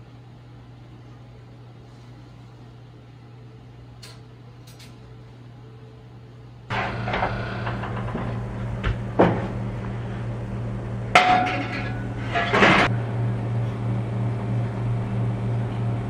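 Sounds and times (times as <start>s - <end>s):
appliance motor hum: 6.7s - 16.0s.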